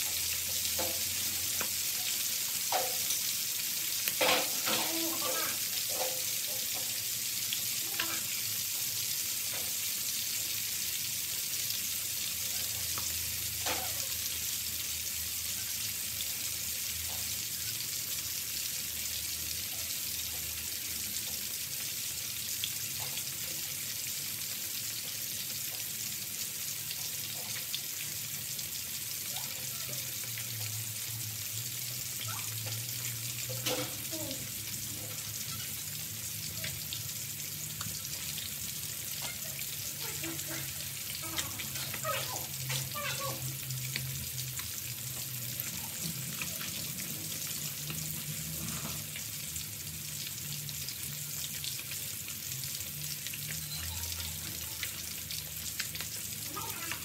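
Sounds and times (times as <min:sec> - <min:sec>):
fish deep-frying in oil: 0:00.0 - 0:57.0.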